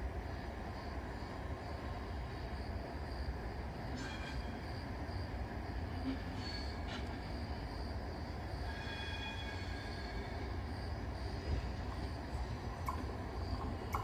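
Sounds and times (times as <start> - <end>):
train rumbling: 0.0 - 14.0
train wheels squealing: 3.9 - 5.0, 5.8 - 7.7, 8.4 - 11.8.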